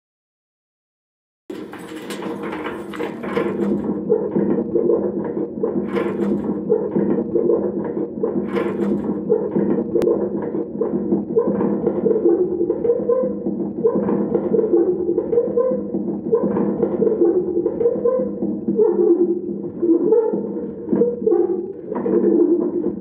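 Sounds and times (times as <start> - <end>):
trolley rolling over carpet: 1.5 - 4.0.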